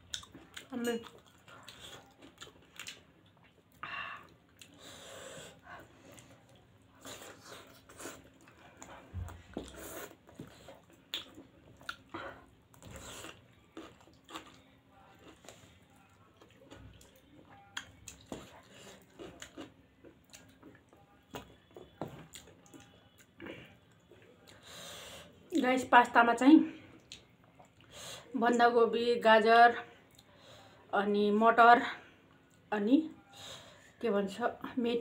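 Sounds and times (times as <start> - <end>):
people chewing: 0.0 - 24.9.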